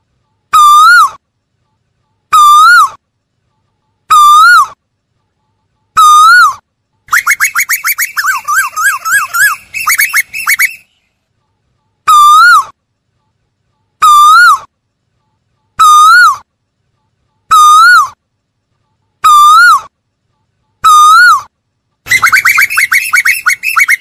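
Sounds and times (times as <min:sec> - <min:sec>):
bird whistled calls: 0:07.1 - 0:11.0, 0:22.1 - 0:24.0.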